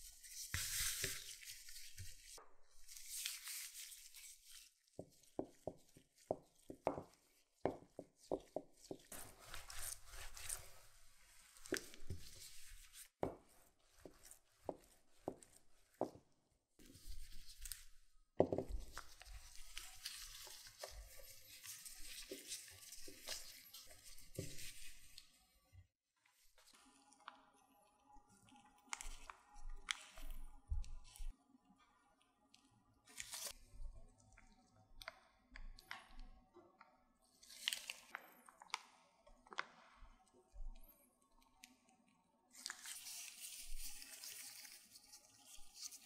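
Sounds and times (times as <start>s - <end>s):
gloves rustling: 0.0s - 25.6s, 33.1s - 33.9s, 42.6s - 46.0s.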